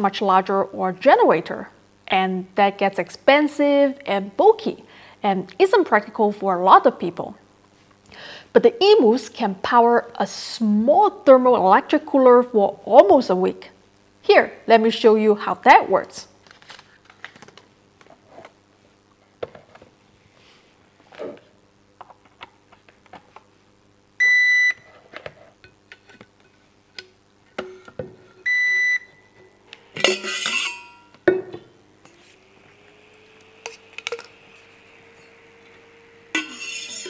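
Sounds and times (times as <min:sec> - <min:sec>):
cooling fan whirring: 0:26.9 - 0:37.0.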